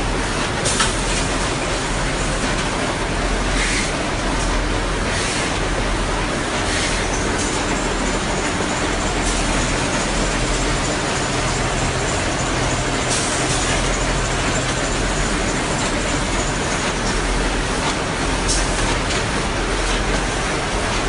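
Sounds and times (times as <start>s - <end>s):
production machinery running: 0.0s - 21.0s.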